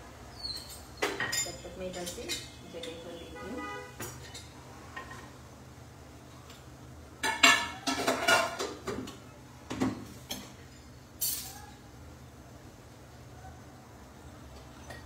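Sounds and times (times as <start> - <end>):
kitchen utensils and pots clattering: 0.4 - 3.0, 7.2 - 11.6.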